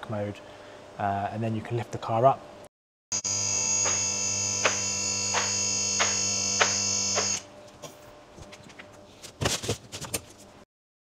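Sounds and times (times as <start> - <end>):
electric lift motor humming: 3.1 - 7.5.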